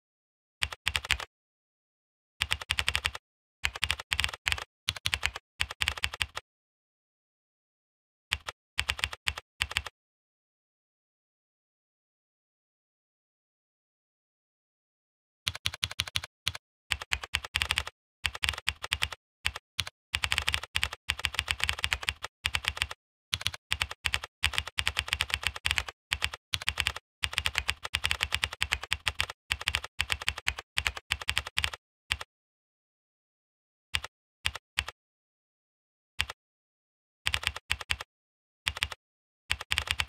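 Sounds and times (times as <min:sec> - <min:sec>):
typing on a computer keyboard: 0:00.6 - 0:01.3, 0:02.4 - 0:06.4, 0:08.3 - 0:09.9, 0:15.5 - 0:32.3, 0:34.0 - 0:35.0, 0:37.3 - 0:38.1, 0:38.7 - 0:40.0.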